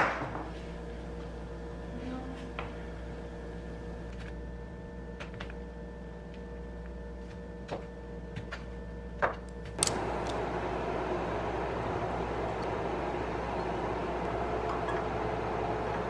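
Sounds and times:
room noise hiss: 9.8 - 16.0.

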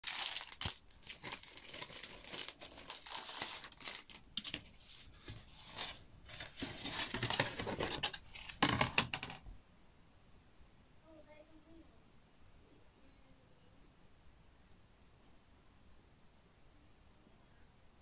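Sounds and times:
packages rustling and scraping: 0.0 - 9.4.

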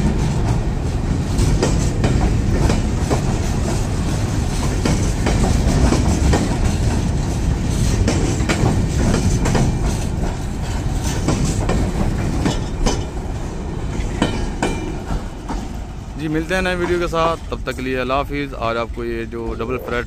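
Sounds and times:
wheels clanking over rail joints: 0.0 - 19.3
train wheels rumbling on rails: 0.0 - 20.0.

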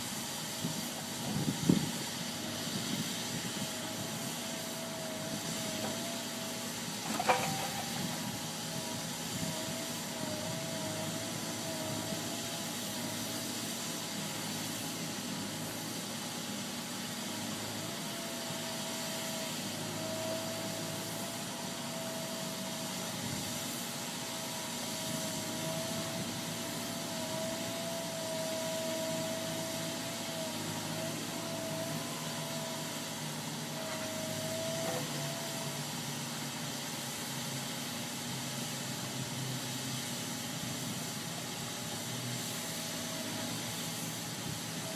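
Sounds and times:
thin wavering whine: 0.0 - 15.9, 17.3 - 35.9
excavator engine running: 0.0 - 44.9.

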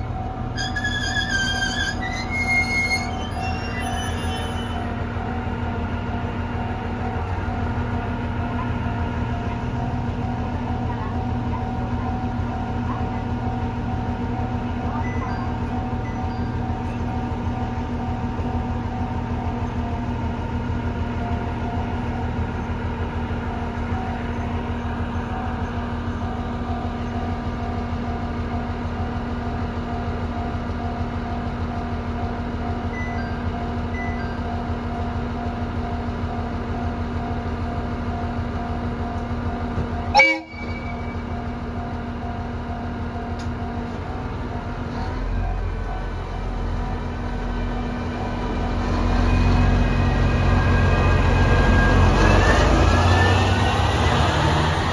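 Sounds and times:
diesel railcar engine idling: 0.0 - 54.9
train horn toot: 0.5 - 5.0, 40.1 - 41.4.

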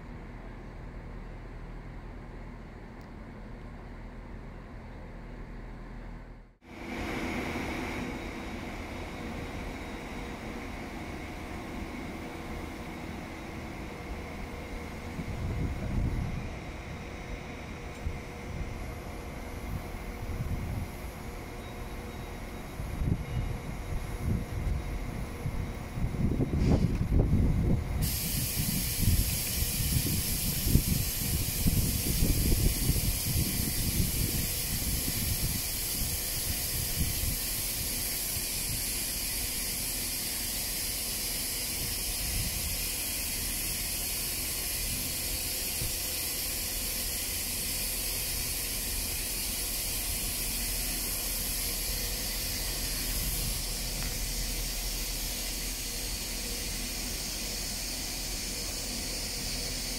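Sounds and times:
wind buffeting microphone: 14.2 - 21.3, 22.6 - 39.0, 52.3 - 55.8.

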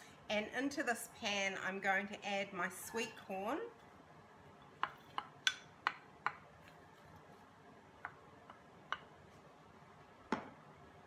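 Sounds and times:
spatula tapping glass bowl: 4.7 - 6.5.

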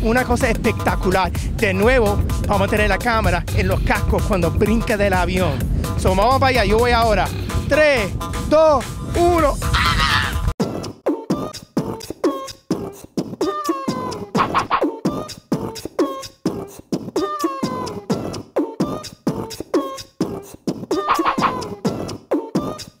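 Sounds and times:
music with quick beat: 0.0 - 7.4, 10.6 - 23.0
sliding vocal-like notes: 9.6 - 23.0.

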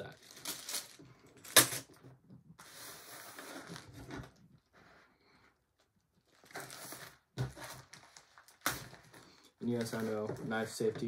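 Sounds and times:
plastic bag crinkling: 0.0 - 1.7.

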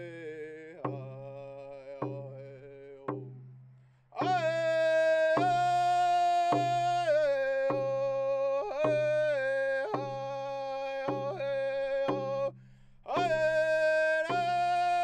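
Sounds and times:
steady beat: 4.2 - 7.1
high voice singing: 13.1 - 15.0.

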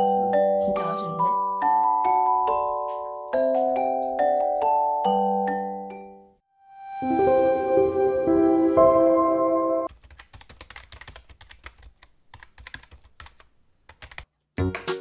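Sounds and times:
music jingle: 0.0 - 9.9
keyboard typing clicks: 9.9 - 14.3.

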